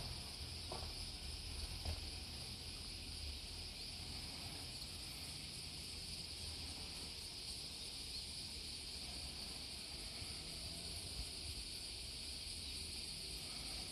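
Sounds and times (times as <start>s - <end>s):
insects droning: 0.0s - 13.9s.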